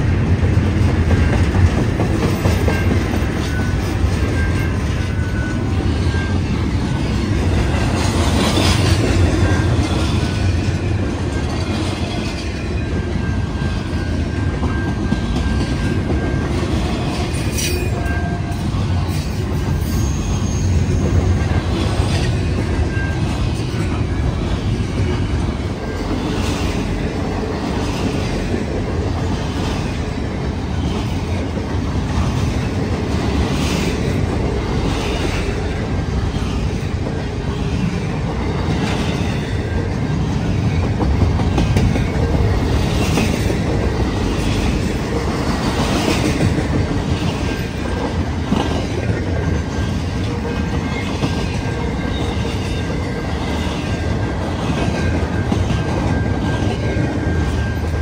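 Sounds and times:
freight train cars rumbling: 0.0 - 58.0
thin steady squeal: 17.4 - 21.7.

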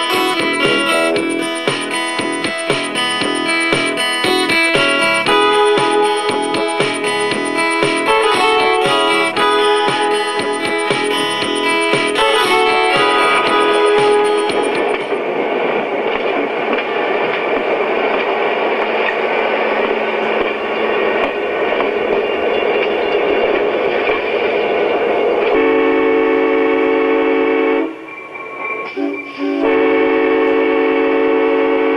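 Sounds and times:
train running noise: 0.0 - 31.9
train horn: 7.6 - 15.2, 25.5 - 28.1, 28.7 - 31.9.

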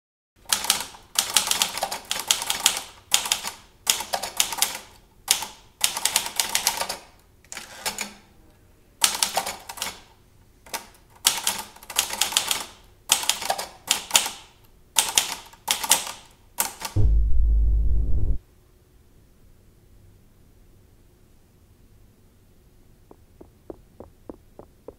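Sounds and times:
deep low rumble: 17.0 - 18.4.

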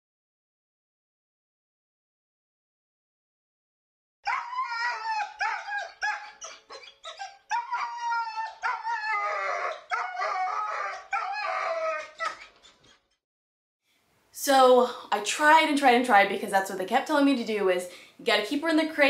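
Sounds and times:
dog whining and moaning: 4.3 - 13.1.

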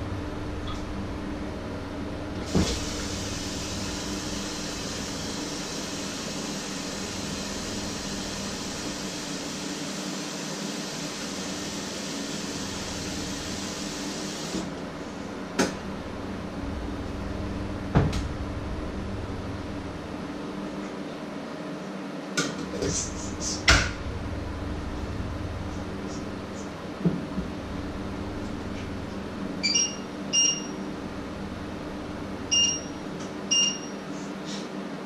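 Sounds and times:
constant low hum: 0.0 - 9.4, 12.4 - 35.0
steady rushing noise: 14.8 - 21.1, 22.8 - 33.5.

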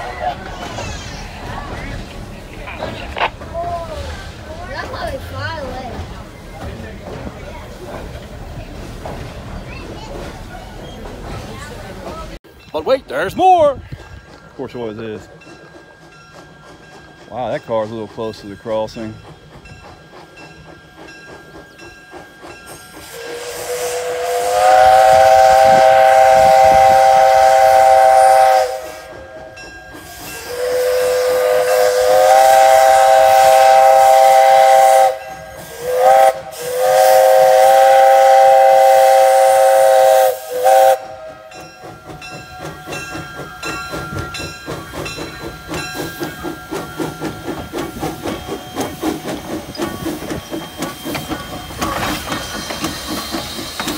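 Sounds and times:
steam hissing: 13.4 - 53.9
steam engine exhaust chuffing: 15.5 - 53.9
steam locomotive whistle: 23.0 - 41.6.

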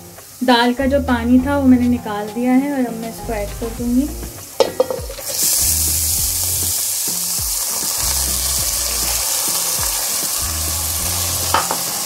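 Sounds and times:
hot oil sizzling loudly: 0.0 - 0.8, 3.7 - 12.0.

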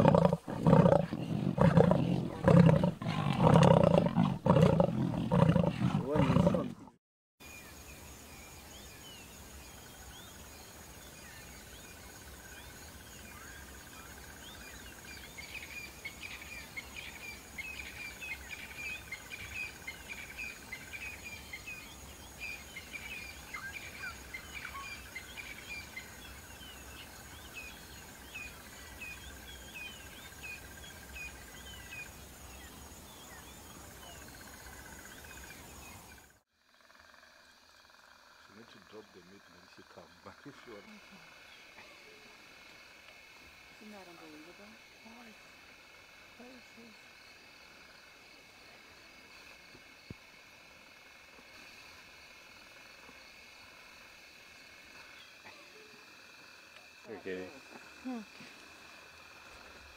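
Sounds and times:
birds chirping: 0.0 - 7.0
lioness growling: 0.0 - 7.0
insect drone: 7.4 - 59.9.

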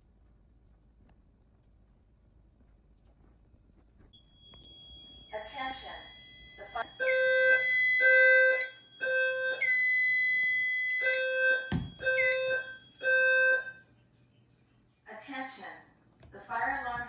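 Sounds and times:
higher alarm tone pulses: 4.2 - 13.8
fire alarm evacuation tone: 4.2 - 13.9.

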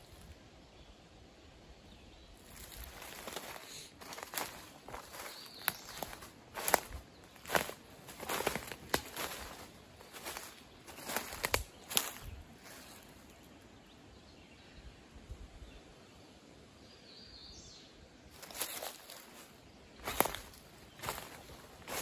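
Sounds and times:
footsteps on forest floor: 2.4 - 13.4, 18.3 - 22.0.

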